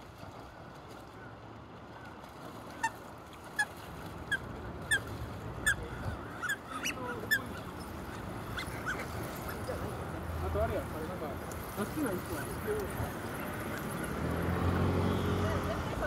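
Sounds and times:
ducks giving whistled calls: 4.3 - 9.6.

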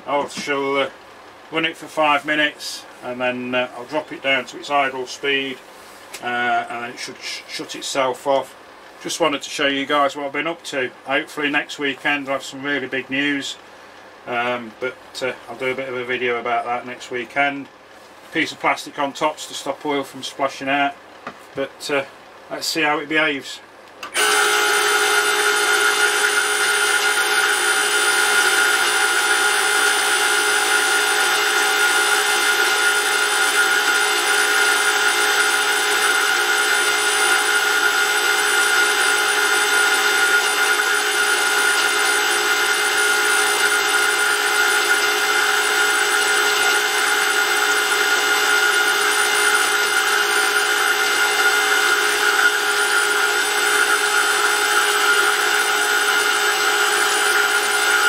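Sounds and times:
electric motor whining: 24.0 - 58.0.

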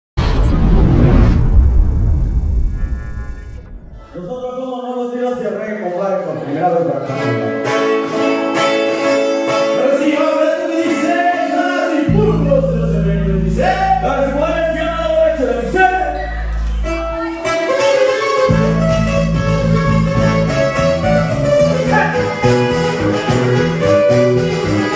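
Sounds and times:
deep bass: 0.2 - 4.4, 12.1 - 17.4, 18.5 - 24.9
strummed acoustic guitars: 7.0 - 12.9, 16.6 - 24.9.

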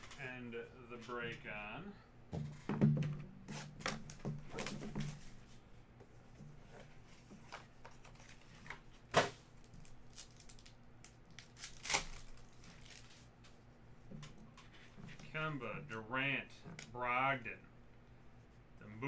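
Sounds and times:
wrapper crinkling: 9.6 - 13.5
foil pack tearing: 9.8 - 13.3.

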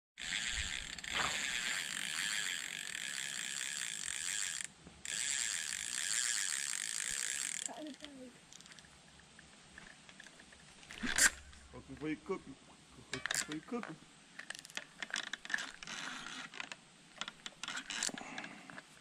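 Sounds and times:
fishing reel ratcheting clicks: 0.2 - 8.8, 13.2 - 13.6, 14.4 - 18.5.

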